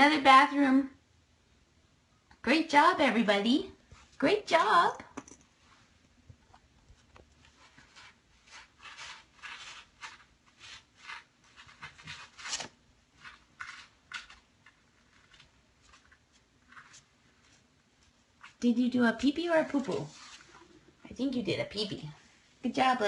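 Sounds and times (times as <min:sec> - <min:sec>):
kitten scratching in cat litter: 0:07.4 - 0:18.8.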